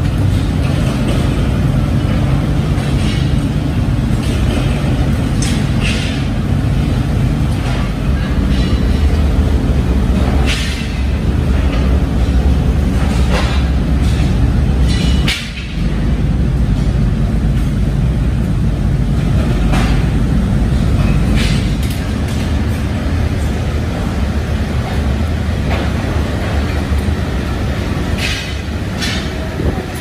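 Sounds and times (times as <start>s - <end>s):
factory machinery rumbling: 0.0s - 30.0s
sharp metal clanks: 13.0s - 15.9s.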